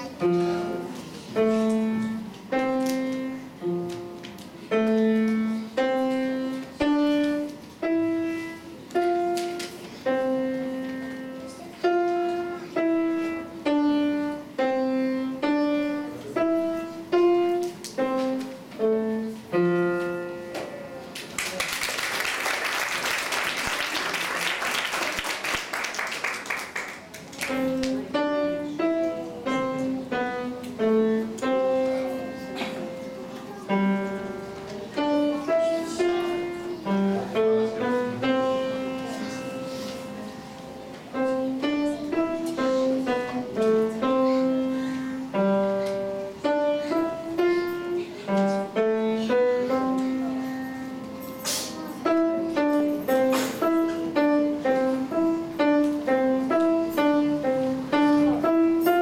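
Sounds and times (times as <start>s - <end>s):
grand piano simple tune: 0.0s - 21.2s, 22.1s - 59.0s
applause: 21.2s - 27.6s.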